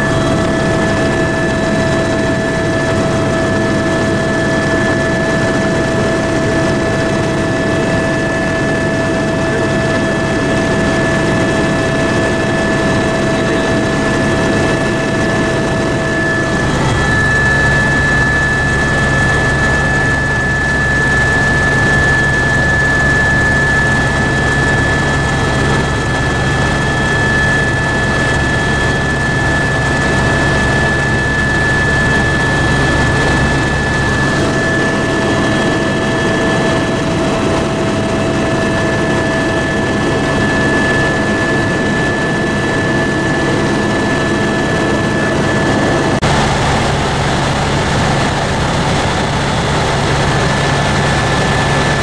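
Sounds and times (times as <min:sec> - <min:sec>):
helicopter cabin drone: 0:00.0 - 0:52.0
high whine: 0:00.0 - 0:52.0
lower whine: 0:00.0 - 0:52.0.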